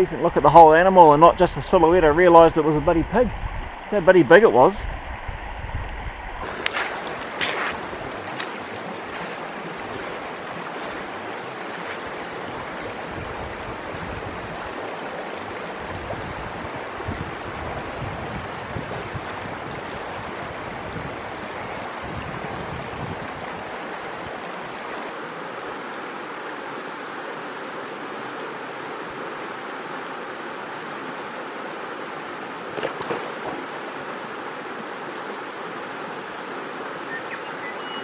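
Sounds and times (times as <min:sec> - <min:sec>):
wind buffeting microphone: 0:00.0 - 0:10.2, 0:15.8 - 0:24.4
river rushing over stones: 0:00.0 - 0:38.0.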